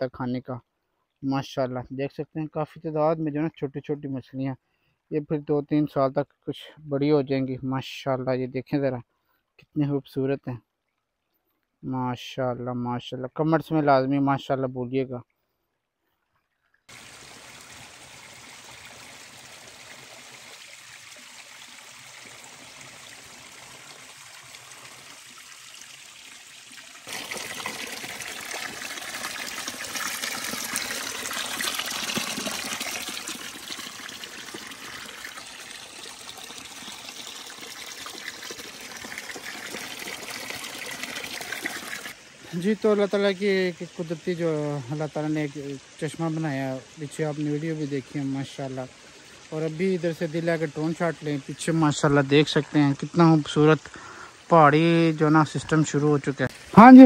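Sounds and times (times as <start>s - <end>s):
spring water trickling: 15.4s - 57.0s
water pouring onto rocks: 16.9s - 45.8s.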